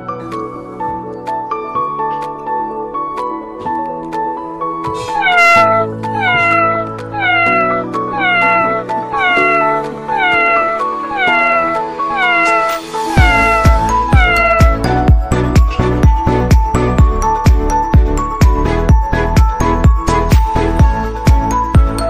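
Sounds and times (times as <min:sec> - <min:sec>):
looped cat meow sample: 0:05.0 - 0:15.2
electronic music: 0:05.2 - 0:21.9.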